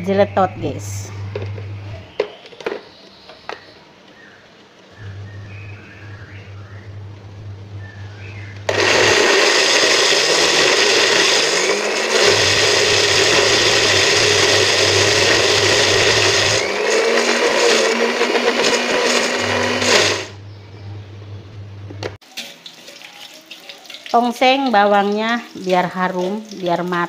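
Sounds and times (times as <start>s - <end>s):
blender grinding: 5.0s - 20.4s.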